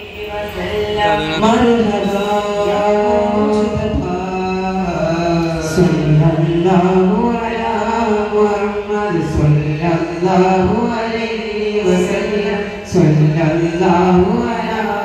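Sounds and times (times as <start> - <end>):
voices chanting in unison over loudspeakers: 0.0 - 15.0.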